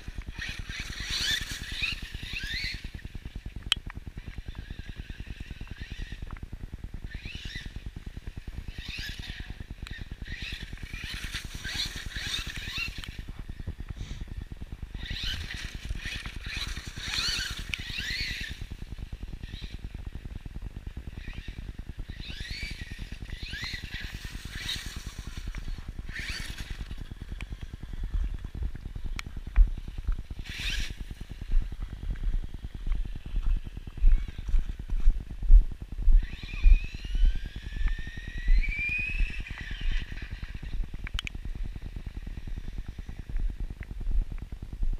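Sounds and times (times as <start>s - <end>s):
wind on microphone: 21.2s - 44.9s.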